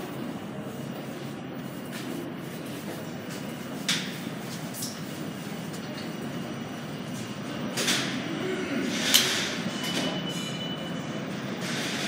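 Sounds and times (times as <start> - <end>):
subway train rumble: 0.0 - 12.0.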